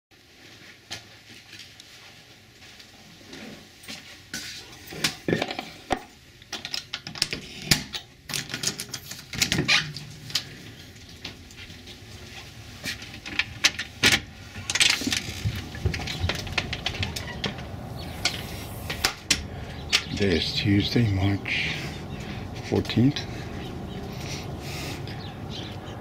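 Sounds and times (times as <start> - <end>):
low outdoor hum: 0.2 - 26.0.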